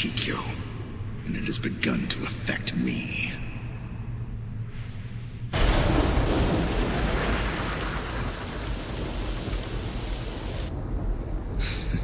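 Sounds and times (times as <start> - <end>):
thunderclap and low rumble: 5.5 - 12.0
heavy rain pouring: 5.6 - 12.0.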